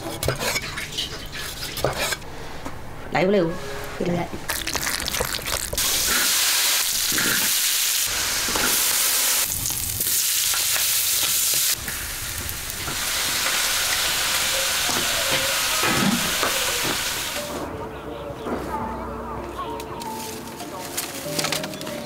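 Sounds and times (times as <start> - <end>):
food sizzling in a wok: 5.7 - 17.4.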